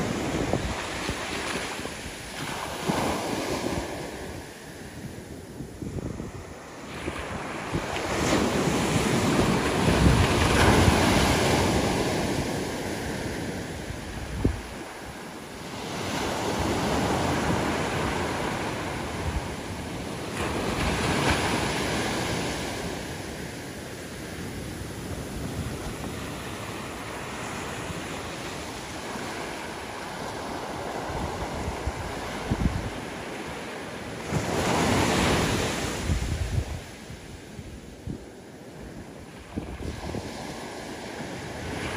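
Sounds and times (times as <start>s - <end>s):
small waves breaking on beach: 0.0s - 41.9s.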